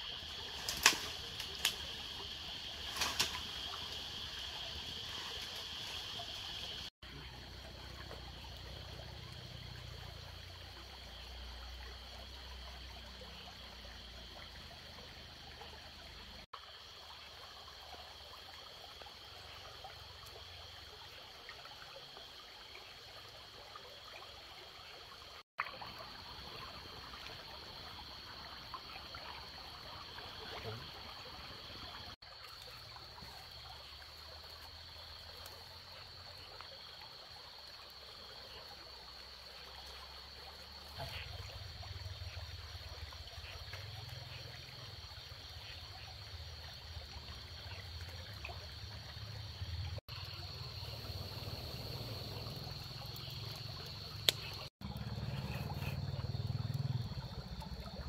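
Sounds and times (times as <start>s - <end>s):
insect chorus at night: 0.0s - 58.0s
campfire crackling and popping: 0.3s - 5.9s, 51.9s - 55.9s.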